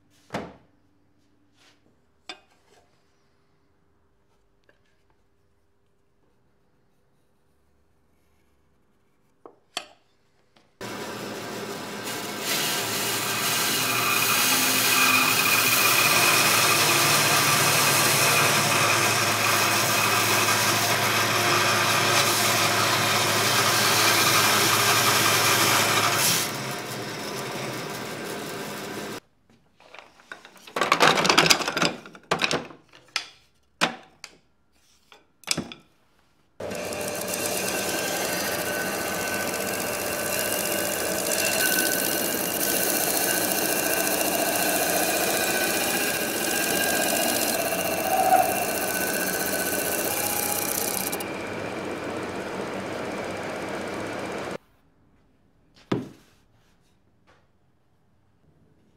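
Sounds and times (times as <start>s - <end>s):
bandsaw cutting wood: 10.8s - 29.2s, 36.6s - 54.6s
disc sander sanding wood: 10.8s - 29.2s, 36.6s - 54.6s.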